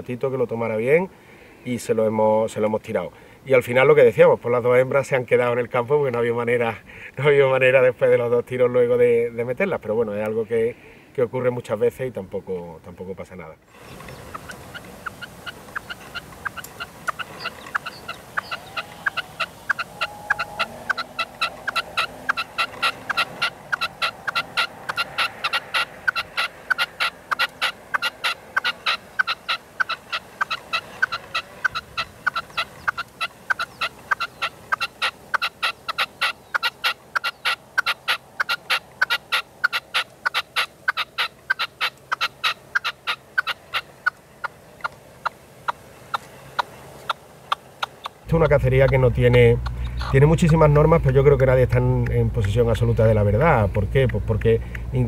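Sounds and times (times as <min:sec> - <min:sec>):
partridge decoy calling: 0:13.7 - 0:55.0.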